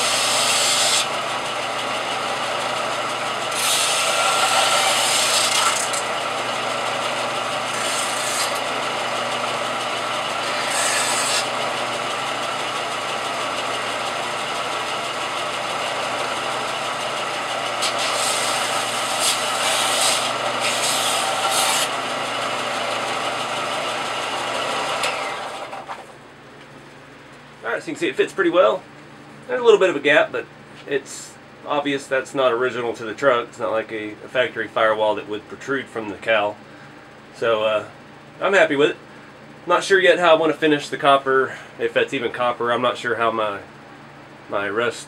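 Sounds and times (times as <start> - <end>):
metal rasping on sanding belt: 0.0 - 1.1, 3.5 - 6.1, 7.6 - 8.8, 10.3 - 11.6, 17.8 - 22.0
electric bench sander running: 0.0 - 26.2.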